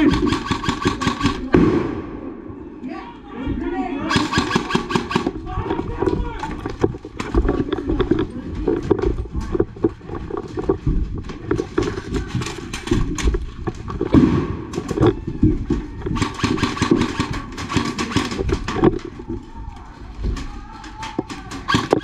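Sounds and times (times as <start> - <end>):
low rumble of movement: 5.2 - 16.2.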